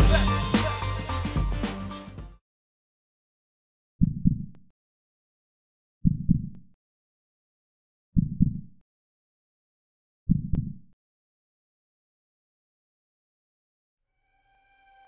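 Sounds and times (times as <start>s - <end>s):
heartbeat thumps: 4.0s - 4.5s, 6.0s - 6.6s, 8.2s - 8.6s, 10.3s - 10.8s.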